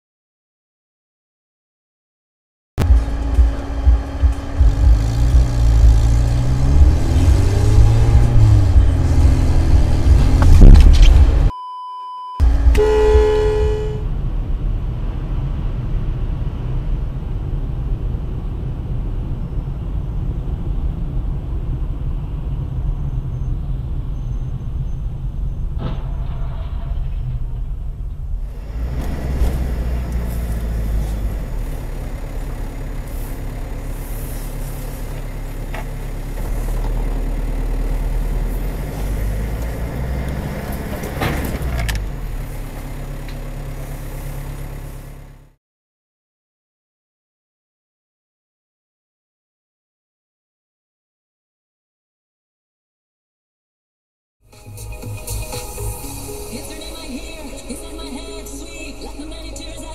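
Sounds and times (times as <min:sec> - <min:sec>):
engine and road rumble: 0:02.8 - 0:45.6, 0:54.4 - 0:59.9
short steady beep: 0:11.5 - 0:14.0
car horn: 0:12.4 - 0:14.2
cars colliding crash: 0:25.7 - 0:28.1, 0:40.7 - 0:42.0.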